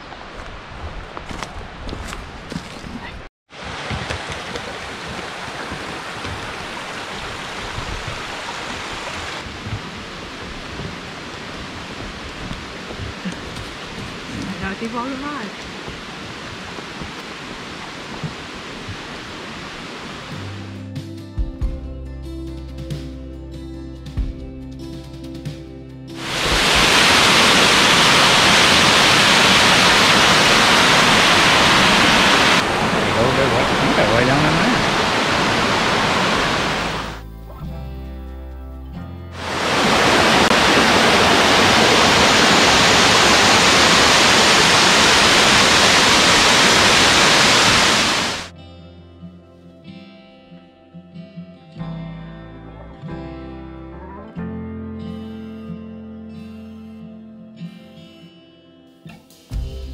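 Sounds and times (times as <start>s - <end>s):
mountain stream rushing: 3.5s - 20.8s, 26.2s - 37.2s, 39.4s - 48.5s
waterfall pouring over rocks: 3.6s - 20.6s, 26.2s - 37.2s, 39.4s - 48.5s.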